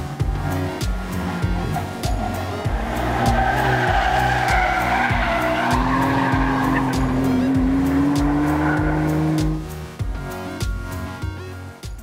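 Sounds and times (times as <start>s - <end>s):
car engine revving: 0.0s - 9.9s
background music with beat: 0.0s - 12.0s
tyres squealing: 0.2s - 9.6s.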